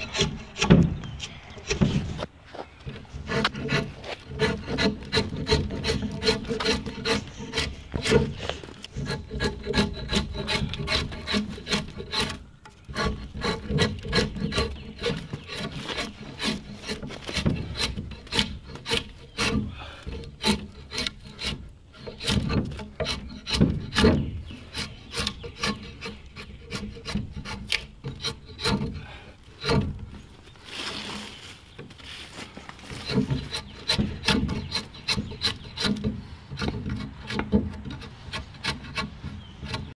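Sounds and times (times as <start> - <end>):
drawknife scraping wood: 2.9 - 30.0.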